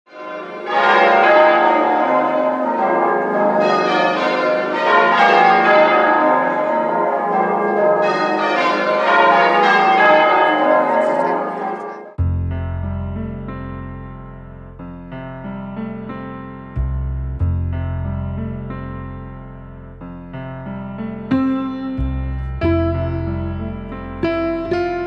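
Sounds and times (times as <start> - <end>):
church bells pealing: 0.1 - 12.2.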